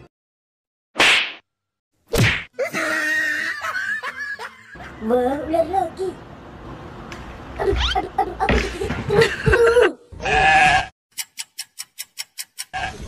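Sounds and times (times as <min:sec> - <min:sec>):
goat bleating: 0:10.2 - 0:10.9.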